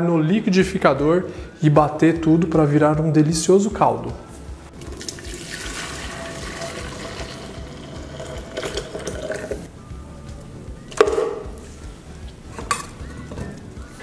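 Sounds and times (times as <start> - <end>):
water pouring into blender jar: 4.8 - 9.7.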